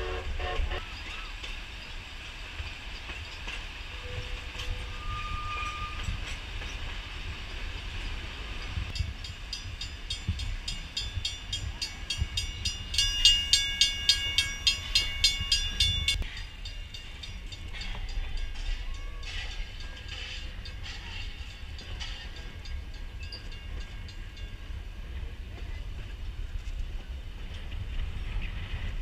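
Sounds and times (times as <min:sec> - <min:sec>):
train passing: 0:00.0 - 0:29.0
wheels clicking over rail joints: 0:00.8 - 0:29.0
high multi-tone squeal: 0:04.0 - 0:06.3.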